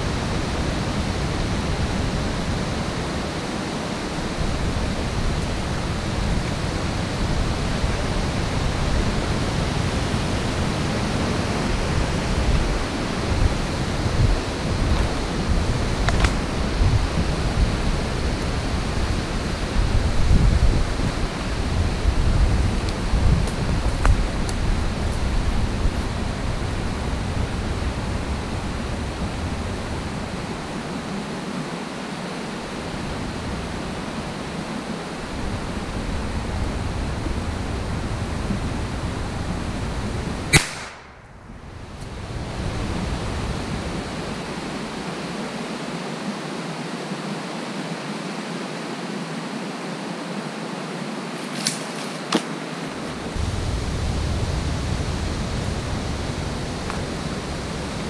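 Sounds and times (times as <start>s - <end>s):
steady hiss: 0.0s - 58.0s
sharp shot: 40.5s - 41.3s.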